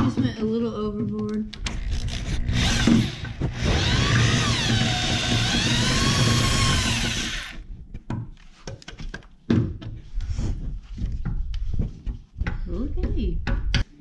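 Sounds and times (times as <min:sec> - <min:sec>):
electric grinder on steel: 0:01.7 - 0:07.6.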